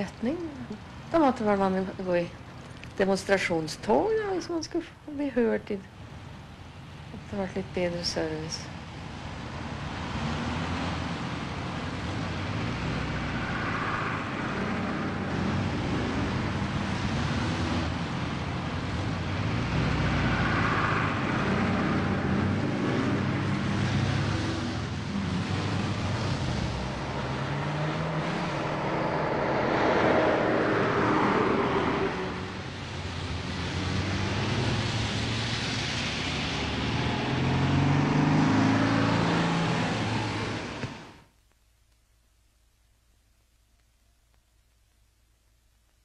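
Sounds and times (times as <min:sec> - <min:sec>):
vehicles passing: 0:00.0 - 0:41.2
vehicle engines running: 0:05.9 - 0:41.2.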